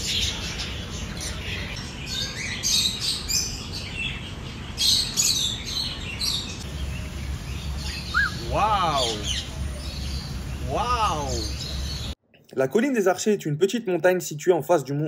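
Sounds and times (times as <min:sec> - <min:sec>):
small parrots chirping: 0:00.0 - 0:12.2.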